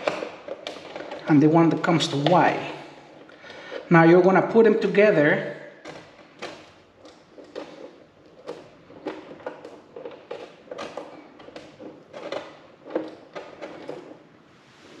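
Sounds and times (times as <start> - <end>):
wires twisted by fingers: 5.8 - 14.2.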